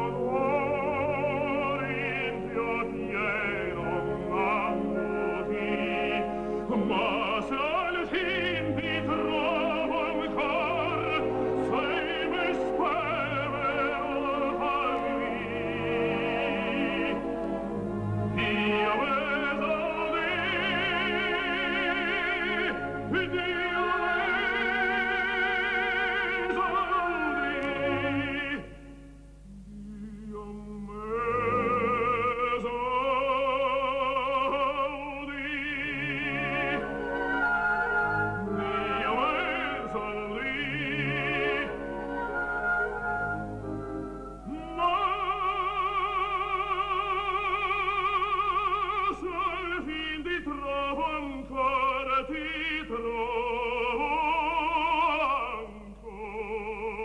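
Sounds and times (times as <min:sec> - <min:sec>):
musical accompaniment: 0:00.0 - 0:57.0
operatic baritone singing: 0:00.0 - 0:57.0.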